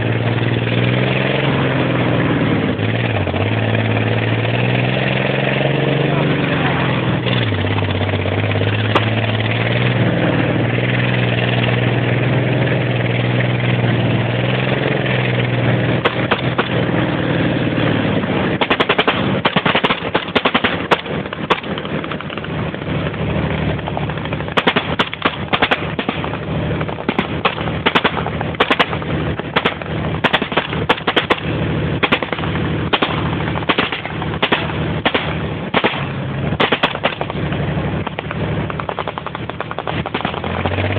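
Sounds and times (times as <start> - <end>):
military vehicle engine running: 0.0 - 40.9
automatic gunfire bursts: 18.6 - 22.4, 24.2 - 37.4, 38.0 - 40.9.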